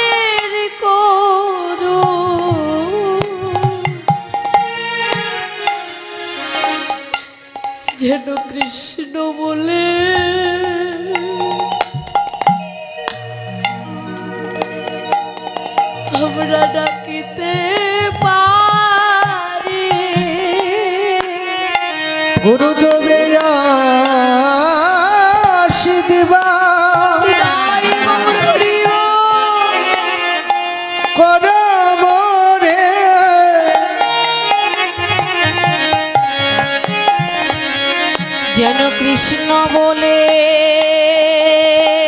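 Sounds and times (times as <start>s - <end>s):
sliding melody with vibrato: 0.0s - 42.0s
hand drum beats: 1.9s - 5.8s, 6.9s - 9.0s, 10.1s - 22.5s, 23.3s - 31.6s, 32.9s - 38.9s.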